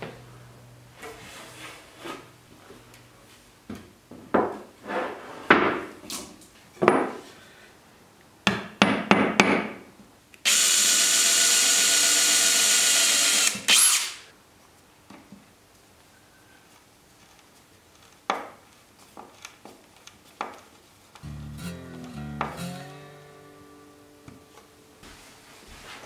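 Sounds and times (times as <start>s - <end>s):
cordless drill running: 10.5s - 14.3s.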